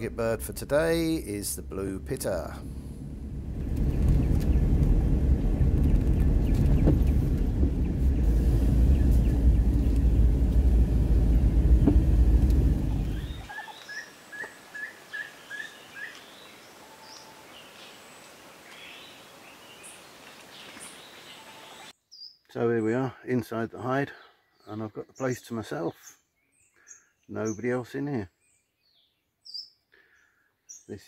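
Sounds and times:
moving car rumble: 0:00.0 - 0:13.5
birds chirping: 0:03.5 - 0:31.0.

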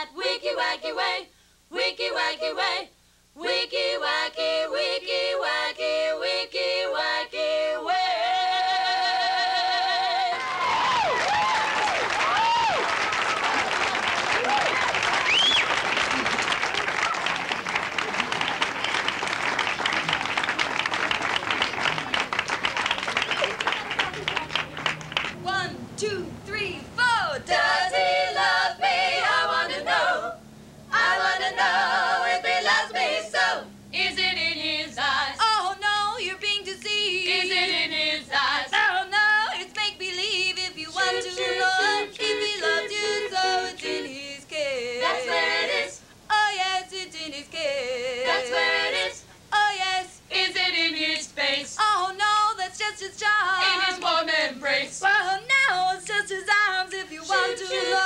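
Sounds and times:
women's vocal group singing: 0:00.0 - 0:10.6, 0:25.4 - 0:58.0.

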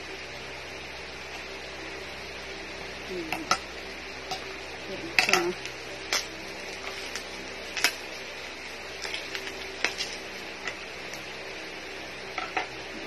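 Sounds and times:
plastic wrapping crinkling: 0:05.6 - 0:11.4.

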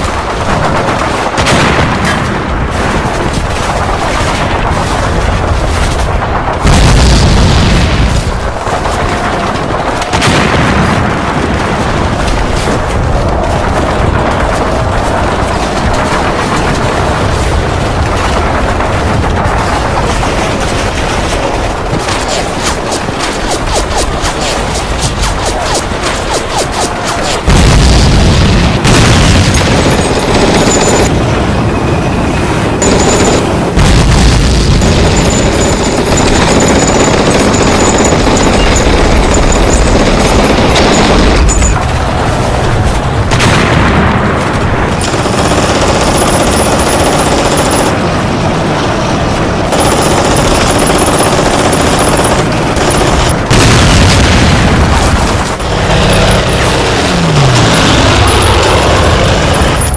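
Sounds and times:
machine-gun fire: 0:00.0 - 0:31.3, 0:32.7 - 0:59.9
explosions: 0:00.0 - 0:59.9.

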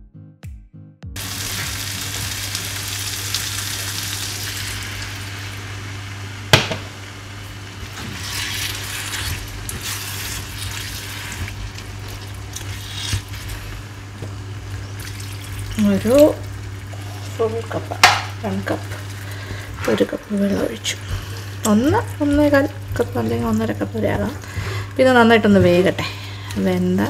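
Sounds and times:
food sizzling in frying pan: 0:01.2 - 0:27.0
steady low hum: 0:01.2 - 0:27.0
water pouring into pan: 0:14.8 - 0:21.5.

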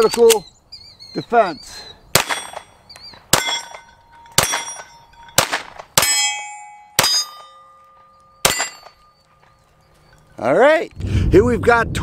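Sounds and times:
pistol shots: 0:02.1 - 0:06.4, 0:07.0 - 0:07.5, 0:08.4 - 0:09.0
steel target ringing: 0:02.2 - 0:09.6.

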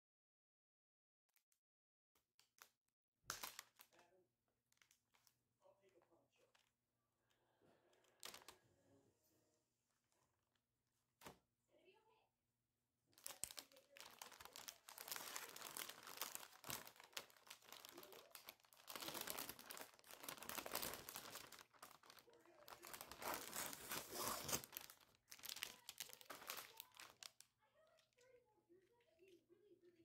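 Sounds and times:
plastic and paper wrapping crinkling: 0:03.3 - 0:04.1, 0:07.9 - 0:08.6, 0:13.2 - 0:28.3.

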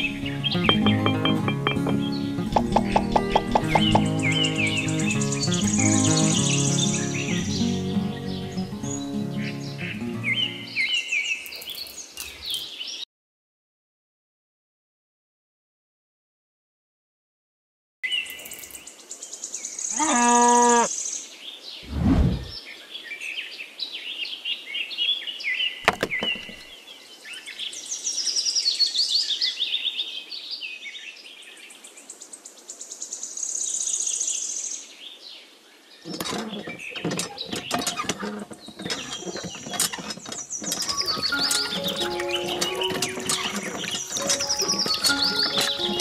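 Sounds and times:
birds chirping and twittering: 0:00.0 - 0:13.0, 0:18.0 - 0:46.0
small clicks and rattles: 0:36.1 - 0:46.0.

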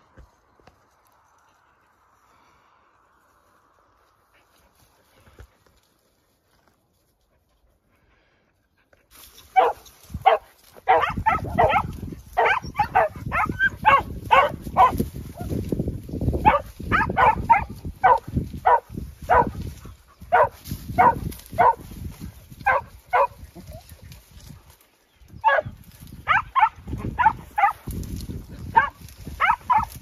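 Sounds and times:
rustle of vegetation: 0:00.0 - 0:08.3, 0:09.0 - 0:30.0
dog barking in quick yelps: 0:09.5 - 0:15.0, 0:16.4 - 0:19.5.

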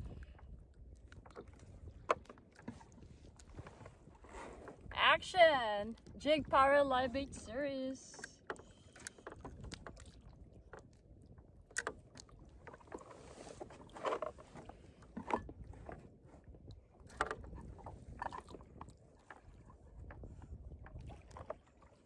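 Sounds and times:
wind rumble: 0:00.0 - 0:02.0
water around a kayak: 0:00.0 - 0:22.0
knocks and bumps on a boat: 0:01.2 - 0:05.0, 0:11.7 - 0:21.8.

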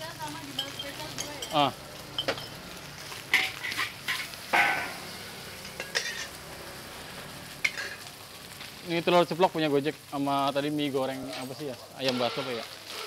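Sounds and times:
food sizzling: 0:00.0 - 0:13.0
metal spatula scraping wok: 0:02.2 - 0:06.4, 0:07.6 - 0:08.1, 0:12.0 - 0:13.0.

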